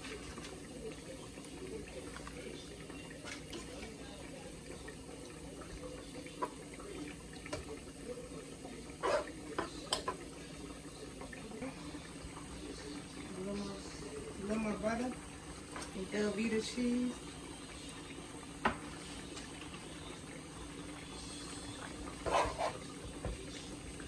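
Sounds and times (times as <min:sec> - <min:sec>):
pot bubbling: 0:00.0 - 0:24.0
spoon scraping and knocking pot: 0:22.2 - 0:22.8.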